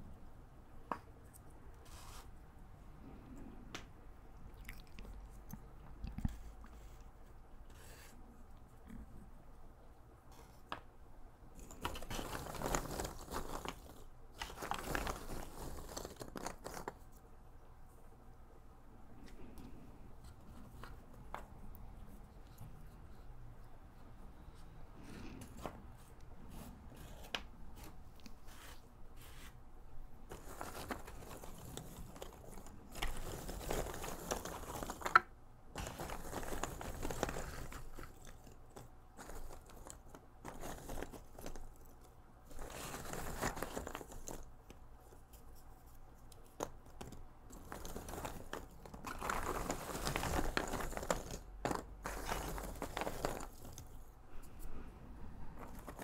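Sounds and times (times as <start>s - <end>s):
puzzle pieces rustling and clattering: 11.5s - 17.3s, 30.2s - 56.0s.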